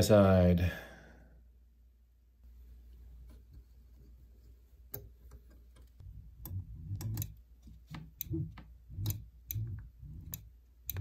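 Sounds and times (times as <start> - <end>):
microswitch clicking: 4.9 - 11.0.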